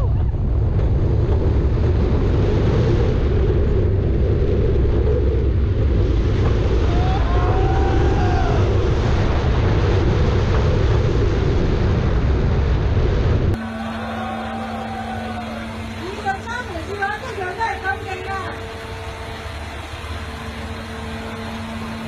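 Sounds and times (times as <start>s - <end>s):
wind buffeting the microphone: 0.0s - 13.6s
roller coaster wheels rumbling: 0.0s - 22.0s.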